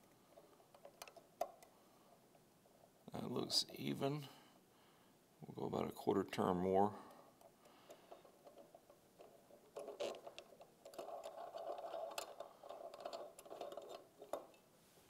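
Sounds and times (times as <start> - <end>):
faint metal scraping and ticking: 0.0 - 2.4, 7.0 - 14.7.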